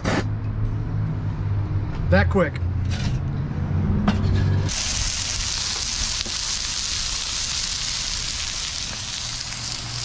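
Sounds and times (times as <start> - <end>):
onions sizzling in a wok: 4.7 - 10.0.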